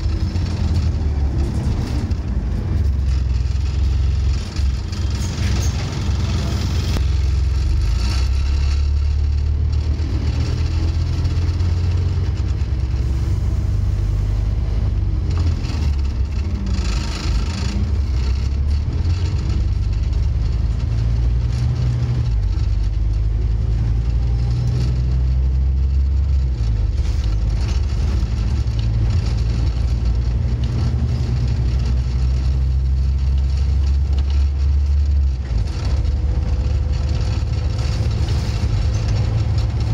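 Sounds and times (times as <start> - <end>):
bus diesel engine growl: 0.0 - 39.9.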